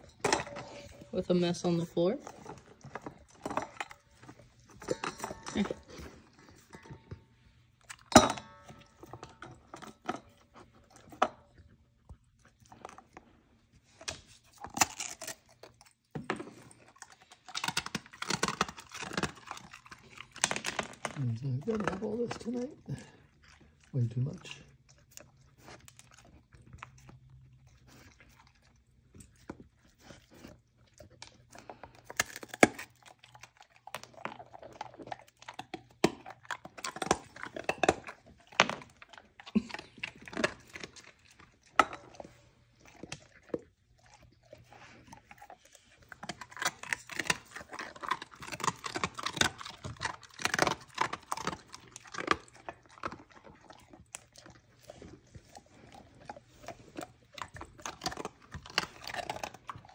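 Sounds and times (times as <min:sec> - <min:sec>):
dog crunching treat: 0:00.0 - 0:59.9.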